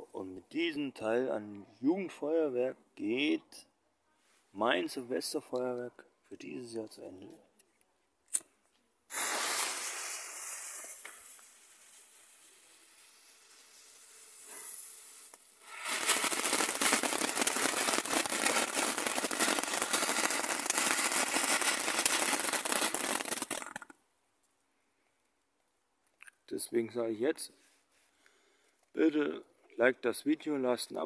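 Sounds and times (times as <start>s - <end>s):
firework fountain crackling hiss: 9.1s - 23.9s
firework hiss: 9.1s - 23.9s.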